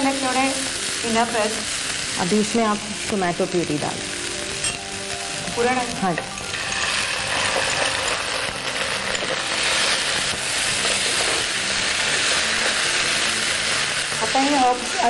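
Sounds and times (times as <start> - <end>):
vegetables sizzling in a pan: 0.0 - 15.0.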